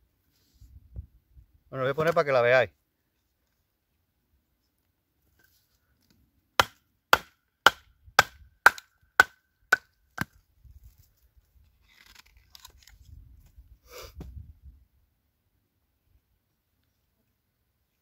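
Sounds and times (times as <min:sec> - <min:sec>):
handling and rustling of wood: 0:03.1 - 0:06.7, 0:08.6 - 0:14.3
hatchet chopping hard wood: 0:06.6 - 0:10.4.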